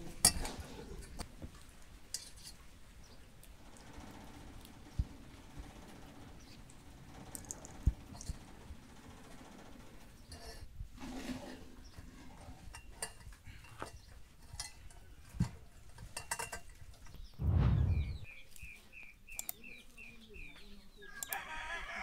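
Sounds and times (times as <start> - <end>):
bird chirping: 17.1 - 21.2
low thump: 17.4 - 18.3.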